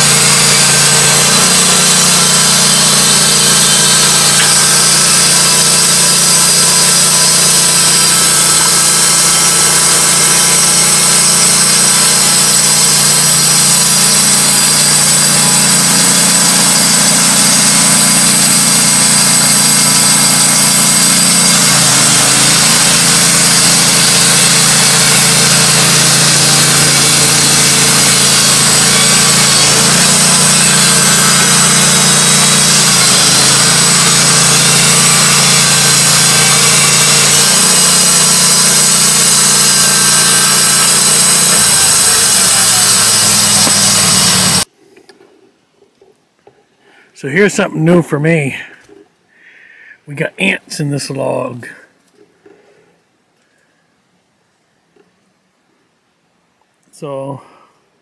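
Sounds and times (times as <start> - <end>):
band blade cutting log: 0.0 - 44.7
band sawmill engine drone: 0.0 - 44.7.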